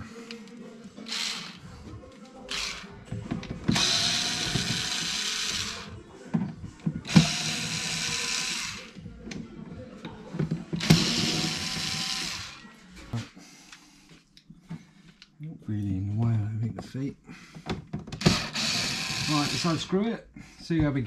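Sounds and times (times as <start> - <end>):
power screwdriver motor whine: 1.1 - 1.6, 3.7 - 5.9, 7.1 - 8.9, 10.8 - 12.6, 18.2 - 19.8.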